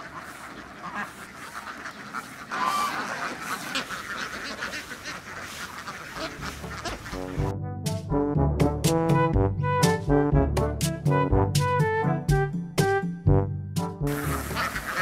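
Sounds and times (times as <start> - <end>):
ducks quacking: 0.0 - 7.5, 14.1 - 15.0
brass music: 6.2 - 15.0.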